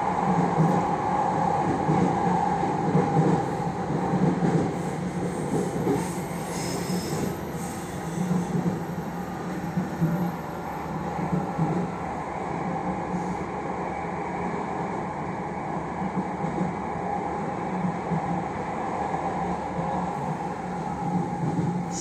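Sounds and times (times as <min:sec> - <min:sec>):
train hum and rumble: 0:00.0 - 0:22.0.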